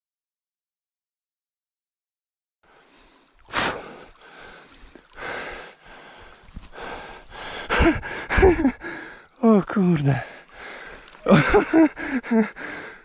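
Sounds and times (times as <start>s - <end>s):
person breathing hard: 2.7s - 9.4s, 10.2s - 13.0s.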